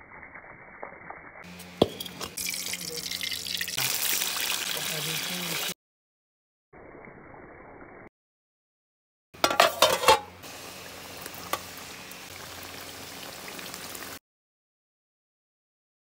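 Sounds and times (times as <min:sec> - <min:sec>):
chicken sizzling in hot oil: 0:00.0 - 0:05.8, 0:09.5 - 0:14.2
metal ladle clanking on pan: 0:09.4 - 0:10.3.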